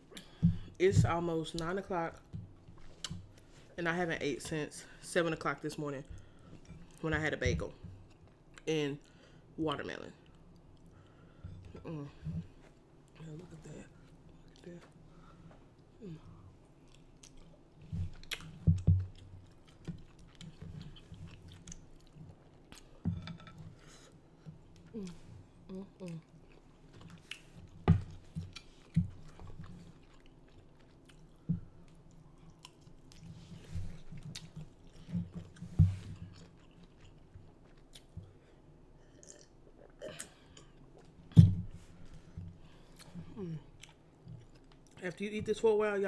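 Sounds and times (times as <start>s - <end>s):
close chewing with wet smacks: 16.7s - 23.1s, 26.0s - 45.6s.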